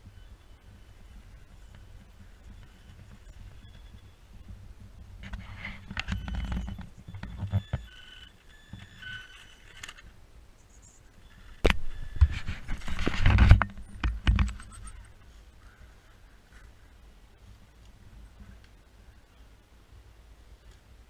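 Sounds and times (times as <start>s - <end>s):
electric motor whine: 5.3s - 9.9s.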